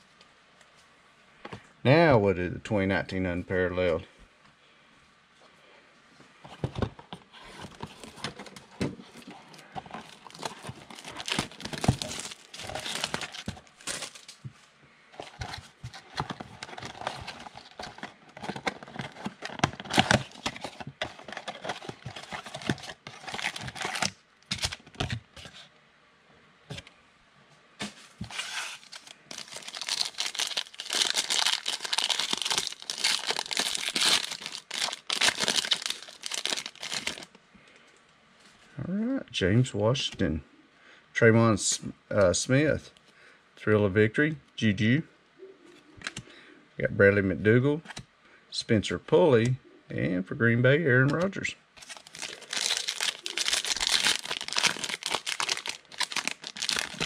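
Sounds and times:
cardboard box being opened: 0:07.4 - 0:14.3, 0:15.2 - 0:25.2, 0:27.8 - 0:37.2, 0:51.8 - 0:57.0
foil packs tearing and crinkling: 0:09.6 - 0:14.4, 0:15.2 - 0:25.2, 0:28.2 - 0:37.3, 0:51.8 - 0:57.0.

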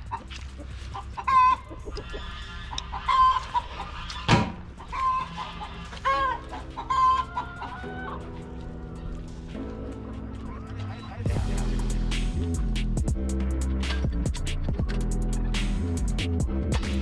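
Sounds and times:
chickens clucking: 0:00.0 - 0:11.3
loud pitched chicken calls: 0:01.0 - 0:08.3.

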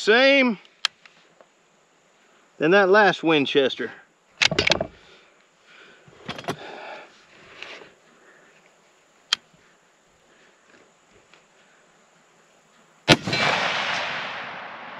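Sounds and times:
rifle handling knocks: 0:04.4 - 0:05.0.

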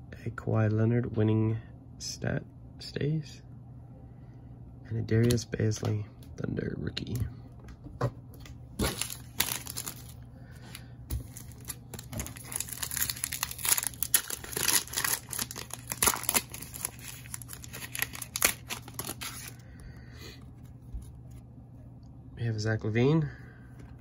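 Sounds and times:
plastic wrapper crinkling: 0:08.8 - 0:19.6.

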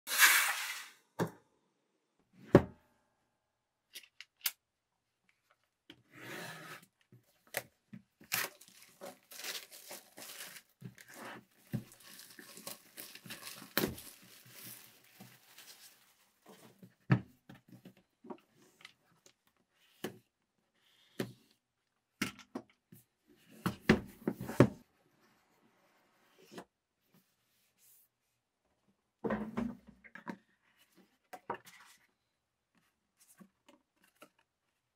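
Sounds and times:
plastic shrink wrap crinkling: 0:08.2 - 0:16.3.

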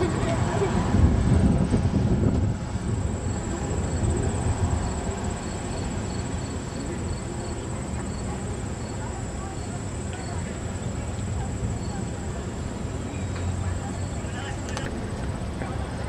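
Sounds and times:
traffic rumble: 0:00.0 - 0:16.0
insects chirping: 0:03.0 - 0:14.7.

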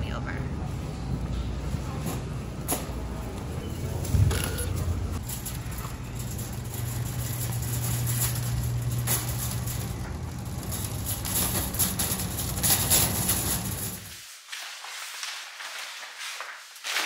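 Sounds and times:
cart wheels rumbling on pavement: 0:03.4 - 0:14.1
metal basket rattling: 0:04.2 - 0:14.1.

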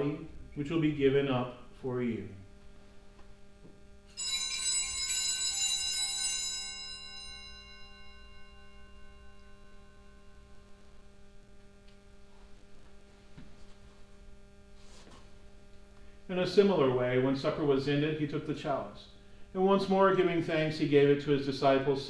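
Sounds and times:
faint steady hum: 0:00.0 - 0:22.0
altar bell ringing: 0:04.1 - 0:11.0.

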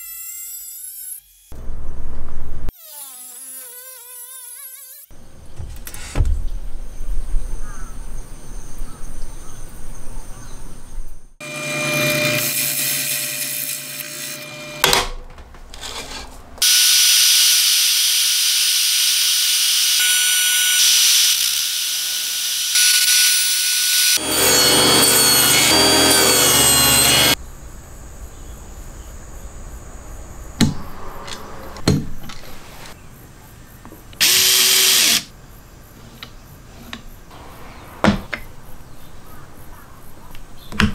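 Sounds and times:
trim router cutting wood: 0:11.4 - 0:14.8, 0:16.6 - 0:27.4.

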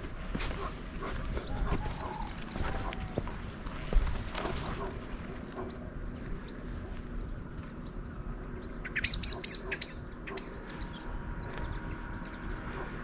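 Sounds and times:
low outdoor background: 0:00.0 - 0:13.0
bird chirping: 0:07.8 - 0:12.8.

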